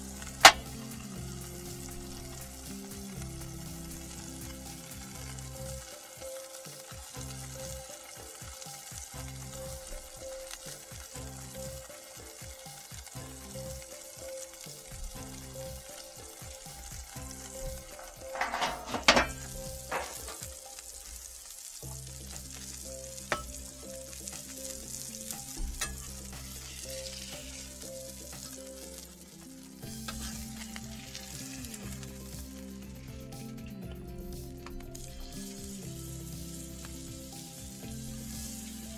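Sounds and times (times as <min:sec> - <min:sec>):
burger patties sizzling: 0:00.0 - 0:38.9
metal pan clattering: 0:00.4 - 0:00.8, 0:17.4 - 0:20.6, 0:23.3 - 0:23.7, 0:25.7 - 0:27.2, 0:29.9 - 0:30.6.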